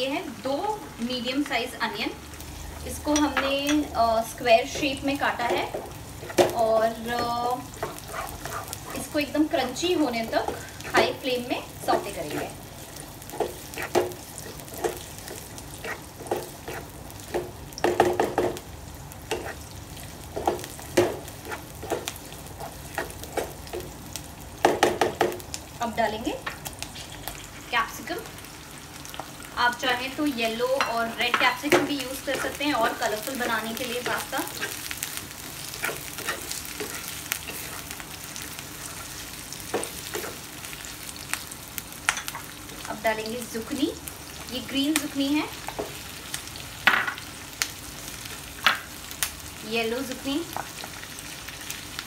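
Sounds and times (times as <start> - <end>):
onions sizzling in hot oil: 0.0 - 52.0
wooden spatula scraping a pan: 4.7 - 12.6, 13.3 - 17.5, 19.3 - 19.7, 20.4 - 23.8, 35.6 - 38.0.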